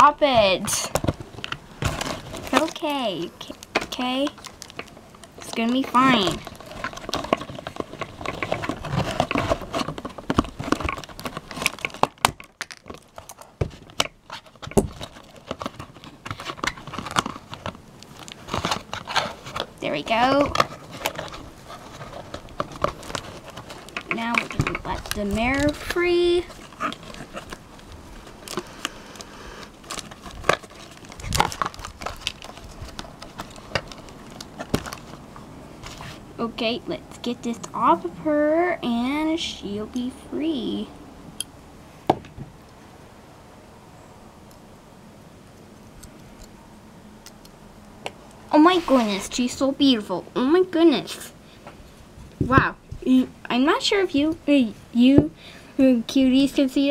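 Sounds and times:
plastic bag crinkling: 0.7s - 36.3s
cardboard box being handled: 5.9s - 28.7s, 29.7s - 35.3s.

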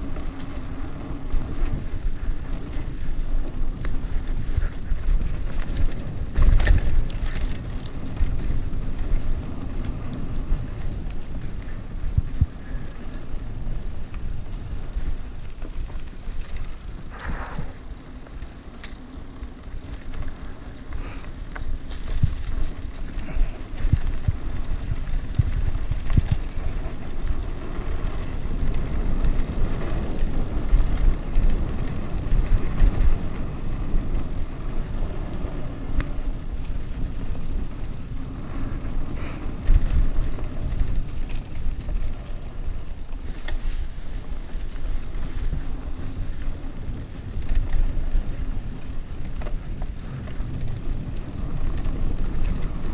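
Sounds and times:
bike knocks and rattles: 0.0s - 52.9s
bike tyres on dirt: 0.0s - 52.9s
wind on microphone: 0.0s - 52.9s.

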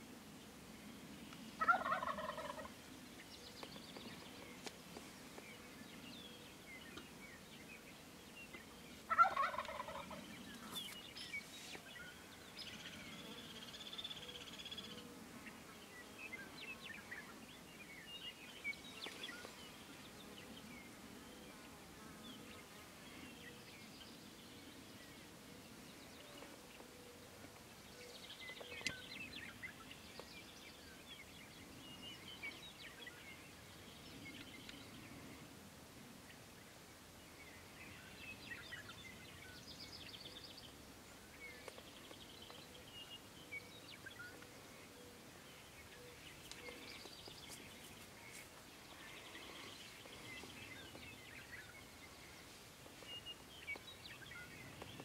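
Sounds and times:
small birds chirping: 0.8s - 35.6s, 36.3s - 55.0s
turkey gobbling: 1.6s - 2.7s, 9.1s - 10.2s.

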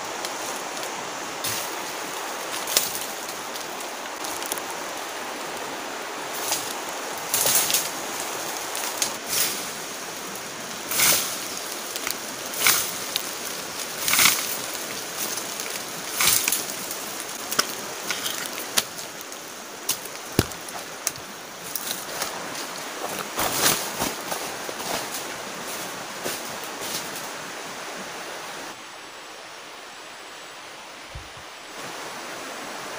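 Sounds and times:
steady rushing hiss: 0.0s - 32.9s
branches snapping: 0.2s - 4.8s, 6.4s - 9.7s, 10.9s - 27.3s
branches swishing: 6.3s - 9.8s, 19.9s - 27.4s.

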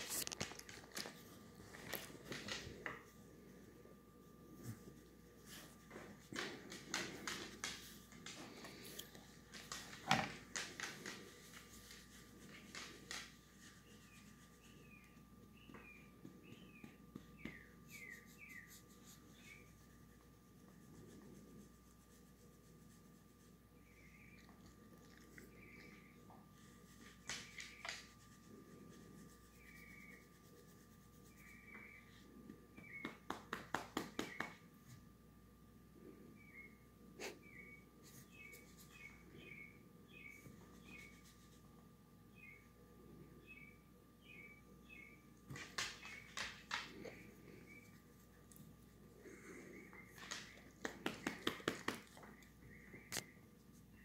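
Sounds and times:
hand rubbing and patting dog fur: 0.0s - 3.2s, 4.4s - 23.6s, 25.8s - 32.0s, 32.7s - 35.1s, 45.4s - 48.5s, 49.3s - 52.4s.

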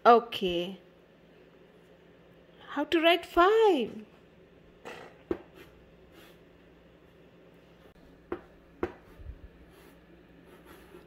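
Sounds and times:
chalk scratching strokes: 5.5s - 6.5s, 8.8s - 11.0s
chalk tapping on blackboard: 8.3s - 9.2s.

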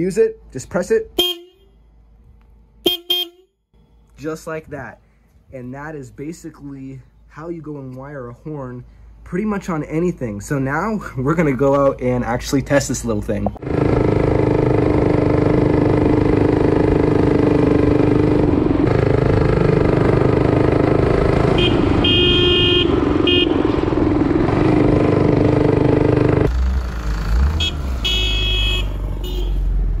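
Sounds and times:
low-tone electric horn: 1.2s - 1.7s, 2.8s - 3.5s, 21.1s - 24.0s, 27.6s - 29.8s
minibike engine running: 13.6s - 26.5s.

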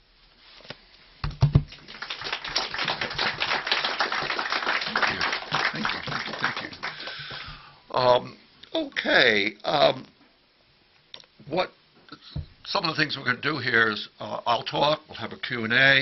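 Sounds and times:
audience applauding: 1.7s - 7.5s.

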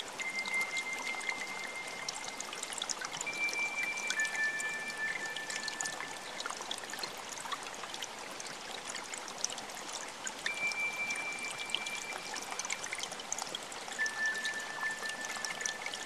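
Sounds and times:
water running and trickling: 0.0s - 16.0s
high pure held tone: 10.5s - 13.0s, 14.0s - 16.0s.

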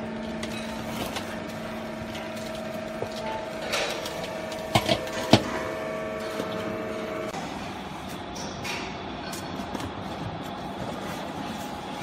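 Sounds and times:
hydraulic pump motor humming: 1.4s - 7.6s.

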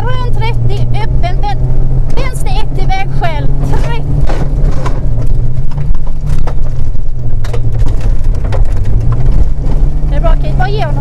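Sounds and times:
car engine running hard: 0.0s - 11.0s
gravel clicking against underbody: 4.3s - 10.2s.

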